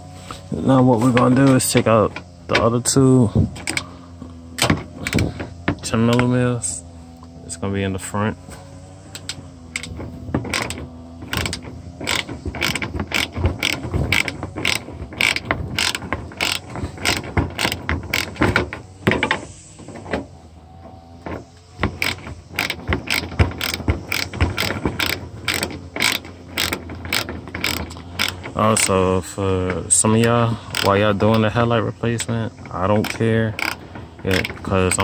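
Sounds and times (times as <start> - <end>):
ratchet wrench clicking: 3.5 - 3.9, 9.1 - 19.4, 21.8 - 29.2, 29.8 - 35.0.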